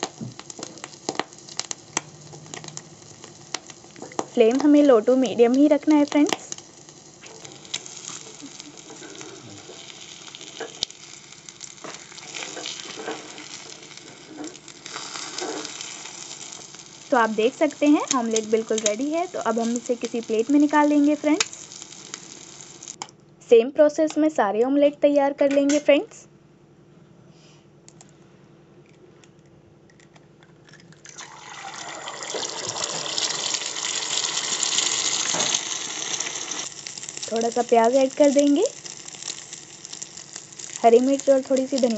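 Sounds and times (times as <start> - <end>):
omelette sizzling in oil: 0.0 - 23.0, 31.0 - 41.9
ladle scraping a pan: 14.2 - 15.8.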